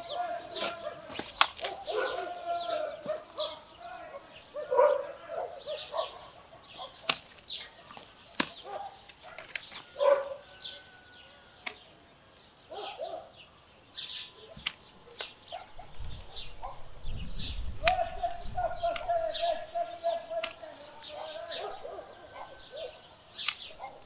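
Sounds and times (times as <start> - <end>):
pruning shears snipping: 0.0 - 3.4, 6.8 - 10.3, 11.6 - 12.5, 14.5 - 15.4, 17.8 - 21.6, 23.3 - 24.0
birds chirping: 0.0 - 24.0.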